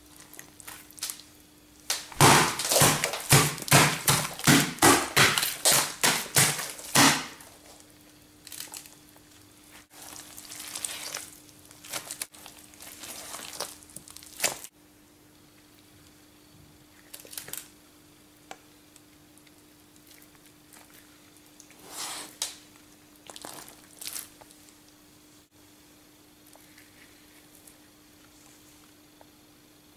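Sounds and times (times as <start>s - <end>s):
faint steady hum: 0.0s - 29.9s
gloved hand slapping wet mess: 1.9s - 7.5s, 10.0s - 14.7s
rustling: 8.5s - 14.7s.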